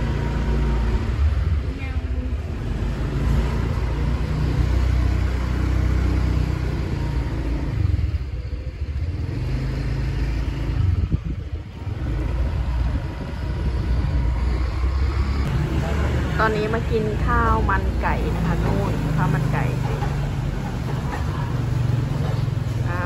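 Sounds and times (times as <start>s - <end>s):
wind rumble on microphone: 10.6s - 17.4s.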